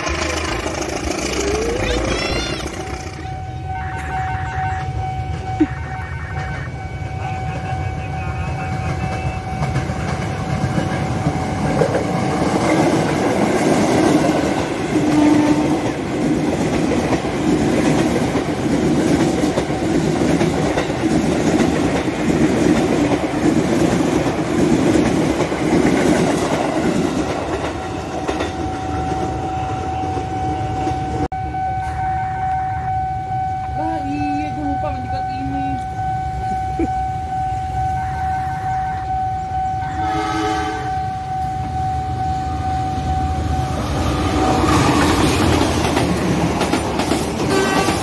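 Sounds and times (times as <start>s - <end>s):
level crossing warning tone: 1.4s - 47.9s
train wheels clattering: 5.4s - 31.1s, 44.0s - 48.0s.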